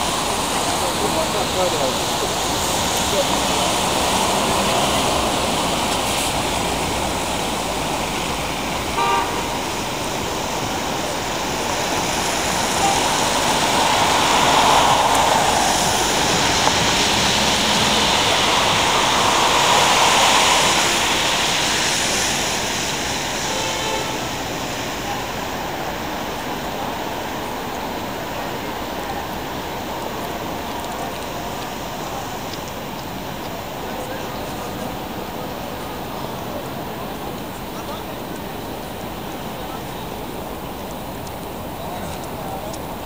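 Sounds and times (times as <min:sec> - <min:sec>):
traffic on a wet road: 0:00.0 - 0:43.0
vehicle horn toot: 0:09.0 - 0:09.7, 0:23.4 - 0:24.3.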